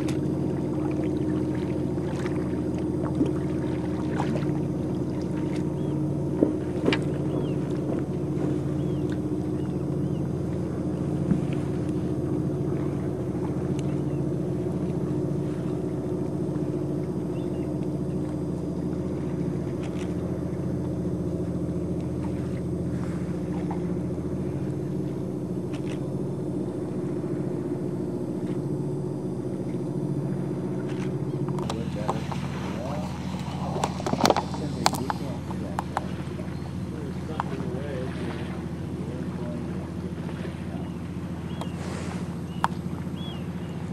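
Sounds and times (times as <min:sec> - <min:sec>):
low mechanical hum: 0:00.0 - 0:43.9
faint ticks: 0:09.0 - 0:09.2, 0:13.7 - 0:14.0, 0:42.6 - 0:42.8.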